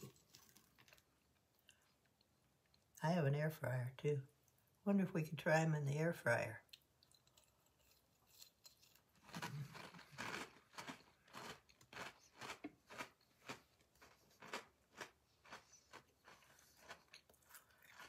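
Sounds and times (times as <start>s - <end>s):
chewing crunchy cereal: 6.7s - 18.0s.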